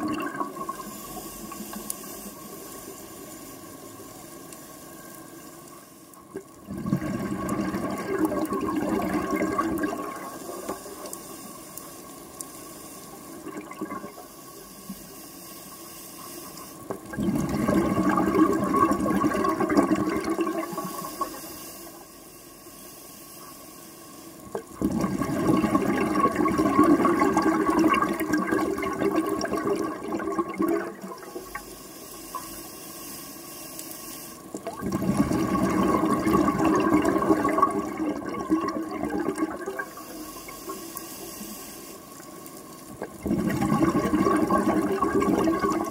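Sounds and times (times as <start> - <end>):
exhaled bubbles rushing: 0.0 - 1.0, 6.6 - 11.2, 13.4 - 14.2, 17.0 - 21.4, 24.5 - 31.6, 34.5 - 39.9, 43.0 - 45.9
diver breathing in through regulator: 20.6 - 24.4, 39.8 - 42.2.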